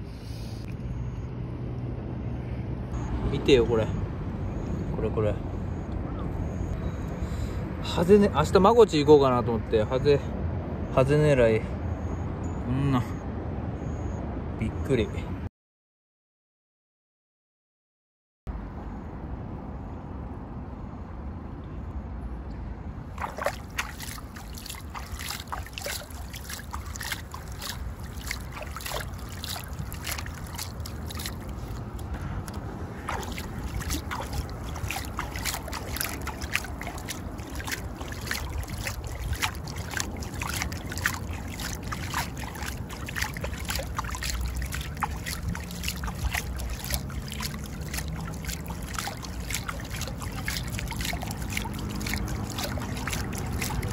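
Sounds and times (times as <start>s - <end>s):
seawater lapping against wall: 23.1s - 53.9s.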